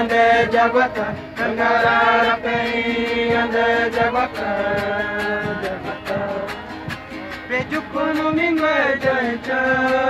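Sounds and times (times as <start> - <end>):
fast percussive beat: 0.0 - 10.0.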